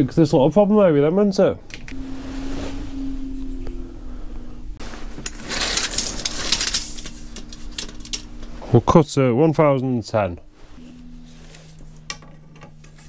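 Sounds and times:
steady low hum: 0.1s - 13.0s
tape measure rustling and scraping: 5.0s - 8.3s.

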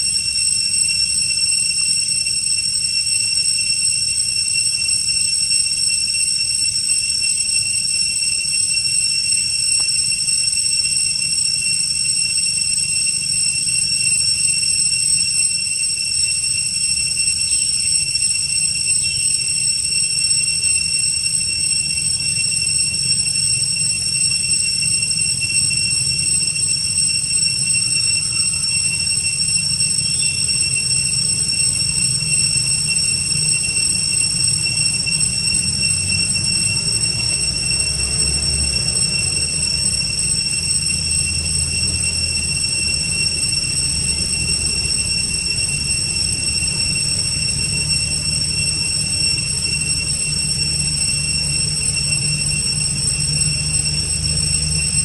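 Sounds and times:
cicadas droning: 0.0s - 55.0s.

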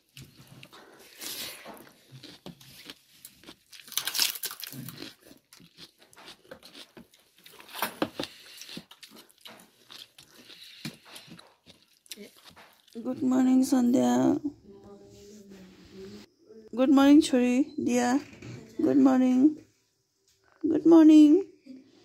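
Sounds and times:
chewing and crunching: 0.0s - 13.1s
fingers clicking and rustling on plates: 1.5s - 13.2s.

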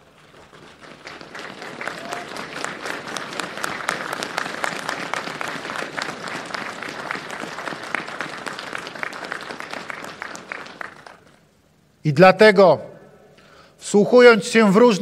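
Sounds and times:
crowd applauding: 0.0s - 11.5s.

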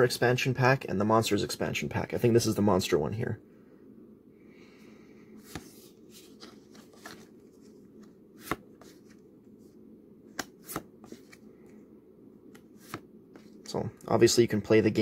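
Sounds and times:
faint low hum: 0.0s - 15.0s
cards sliding and snapping: 5.4s - 9.3s, 10.3s - 11.5s, 12.5s - 13.7s.

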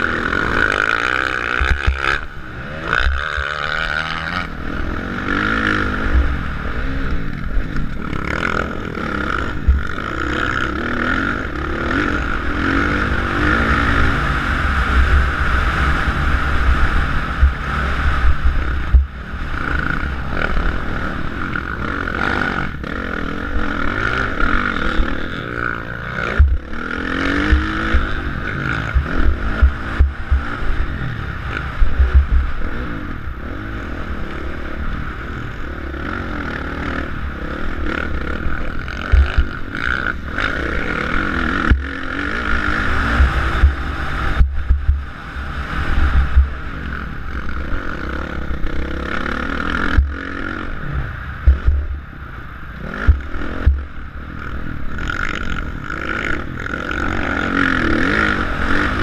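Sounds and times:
motorbike engine revving: 0.0s - 59.0s
wind buffeting microphone: 11.6s - 20.8s, 37.2s - 59.0s.

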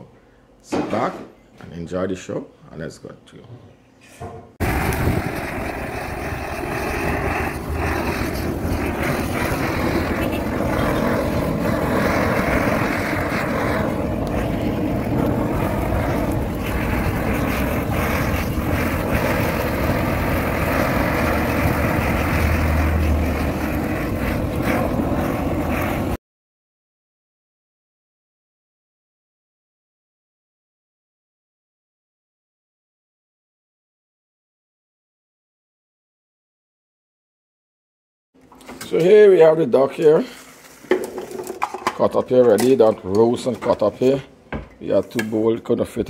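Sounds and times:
gas torch rushing: 4.6s - 26.2s.

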